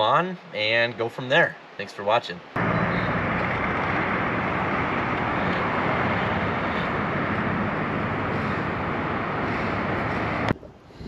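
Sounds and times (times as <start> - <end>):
road noise: 1.6 - 11.0
wind on microphone: 2.6 - 11.0.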